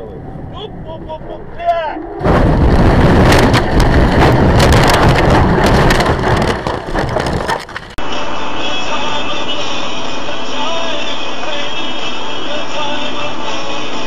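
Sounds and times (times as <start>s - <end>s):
car crash crunching and clattering: 2.2s - 8.0s.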